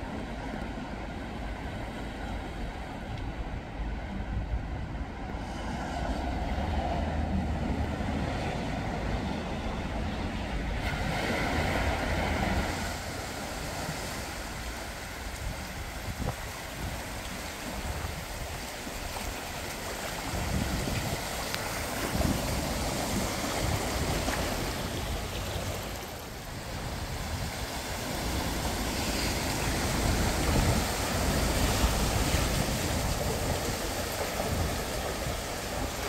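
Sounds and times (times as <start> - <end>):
wind rumble on microphone: 0.0 - 36.0
car tyres splashing through water: 10.8 - 36.0.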